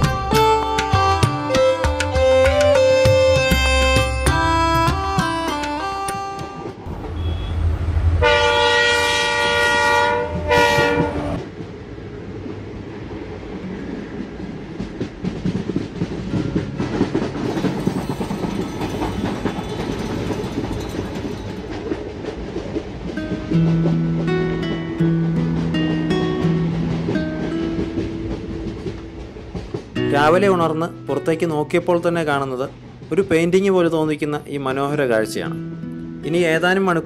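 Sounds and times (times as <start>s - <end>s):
train horn blasts: 3.6s - 11.4s
train wheels clacking on rails: 9.6s - 11.8s, 13.5s - 34.3s.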